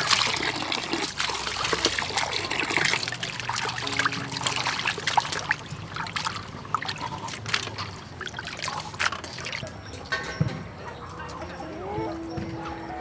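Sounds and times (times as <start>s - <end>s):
hands rinsing fish in water: 0.0s - 9.8s
water trickling into metal bowl: 0.0s - 9.9s.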